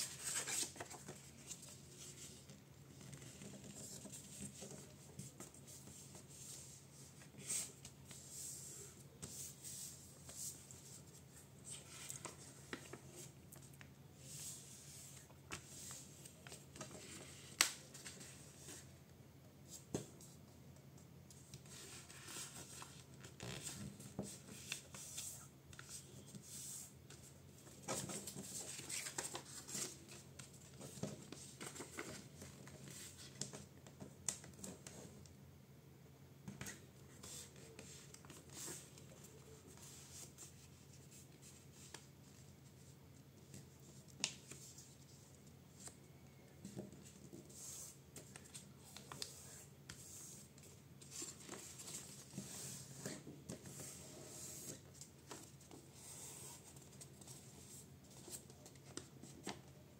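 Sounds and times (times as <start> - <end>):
paper rustling and crinkling: 0.0 - 6.4.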